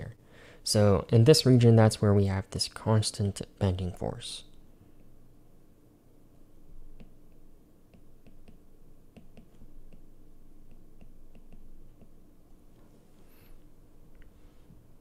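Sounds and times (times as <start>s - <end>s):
steady low hum: 0.0s - 15.0s
stylus tapping on glass screen: 7.0s - 12.2s.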